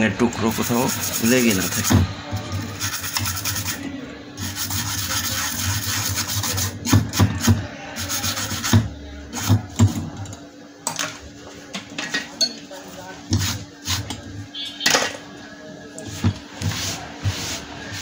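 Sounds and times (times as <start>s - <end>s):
hand tool scrubbing circuit board: 0.4s - 2.0s, 2.6s - 3.8s, 4.4s - 8.8s.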